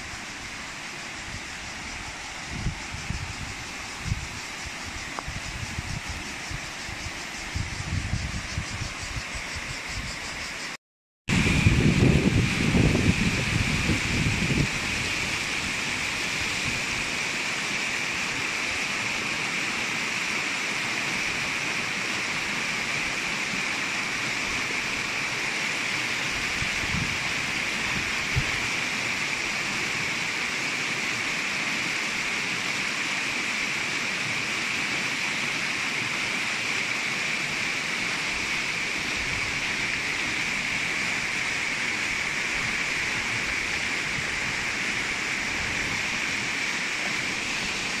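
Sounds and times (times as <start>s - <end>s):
water rushing over rocks: 11.3s - 48.0s.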